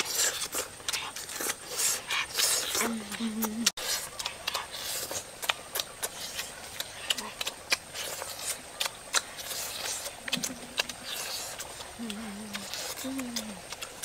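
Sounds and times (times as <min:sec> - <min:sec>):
lip-smacking and chewing: 0:00.0 - 0:14.0
person humming: 0:02.8 - 0:03.8, 0:12.0 - 0:13.7.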